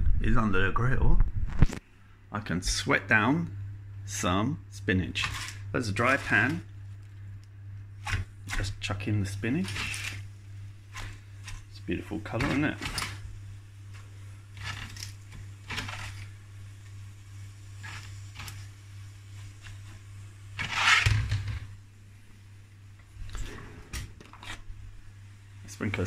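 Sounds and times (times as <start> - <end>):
steady low hum: 0.0 - 26.0
leaves rustling in saucepan: 5.0 - 7.1, 7.9 - 21.6
cupboard opening: 23.2 - 24.6.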